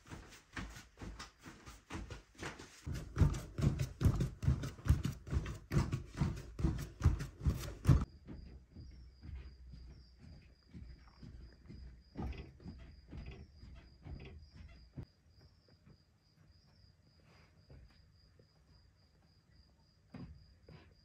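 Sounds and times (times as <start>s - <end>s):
hands kneading bread dough: 0.0s - 10.4s.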